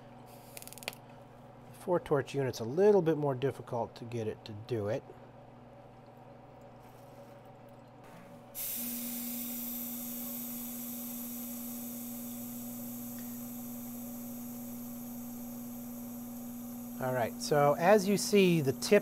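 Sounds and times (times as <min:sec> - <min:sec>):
welding torch hissing: 0:08.6 - 0:19.0.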